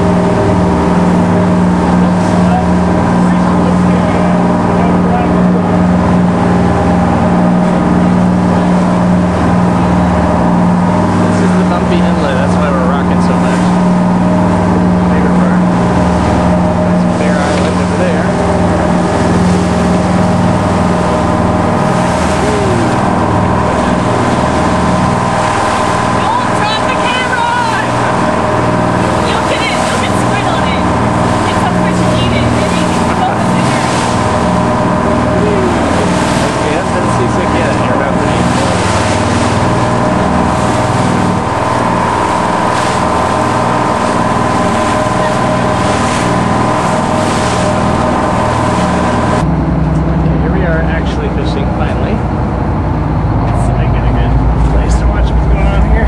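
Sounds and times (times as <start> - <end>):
motorboat engine running: 0.0 - 56.0
water rushing past hull: 0.0 - 56.0
wind: 0.0 - 56.0
wind rushing: 52.2 - 56.0.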